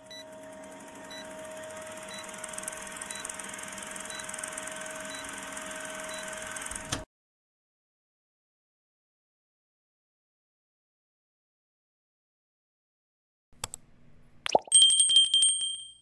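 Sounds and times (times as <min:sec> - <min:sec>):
film projector clatter: 0:00.2 - 0:07.0.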